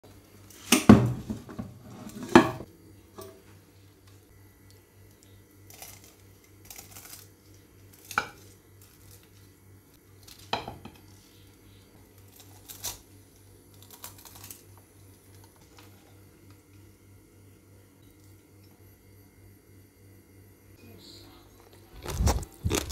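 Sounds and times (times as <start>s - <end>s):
crunching crisp rice crust: 4.6s - 16.2s, 21.6s - 22.9s.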